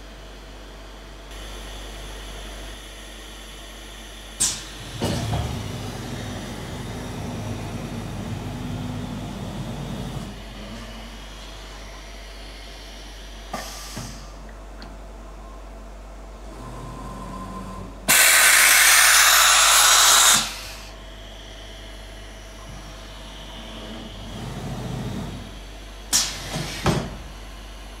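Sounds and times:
machine drives humming: 0.0 - 18.4
short sharp air releases: 4.4 - 4.7, 13.5 - 14.4, 18.1 - 20.9, 26.1 - 27.0
compressed air blast: 18.1 - 20.9.

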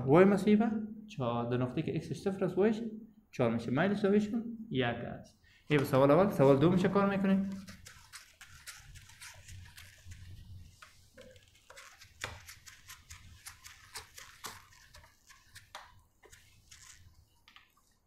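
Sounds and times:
eraser wiping a whiteboard: 7.4 - 17.4.

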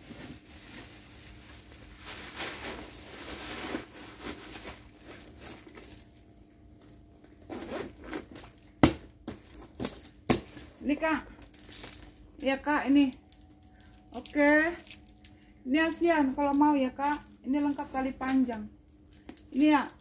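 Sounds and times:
fabric handbag rustling and scraping: 0.0 - 6.1, 7.3 - 8.6.

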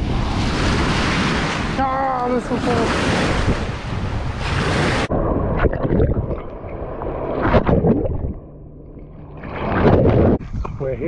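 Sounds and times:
waves washing in shallow water: 0.0 - 5.8
wind buffeting microphone: 0.0 - 6.3
waves sloshing and splashing: 0.0 - 10.6.

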